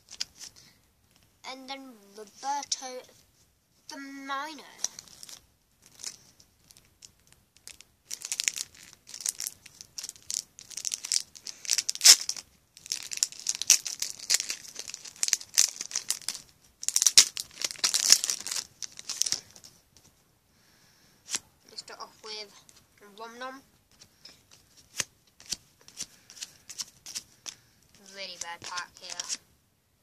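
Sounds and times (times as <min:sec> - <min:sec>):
foil wrapper crinkling and tearing: 0:04.7 - 0:19.8, 0:23.9 - 0:29.4.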